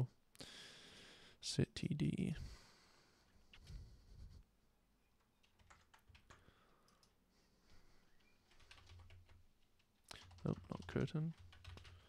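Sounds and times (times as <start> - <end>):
computer keyboard keystrokes: 5.4 - 7.1, 8.2 - 12.0.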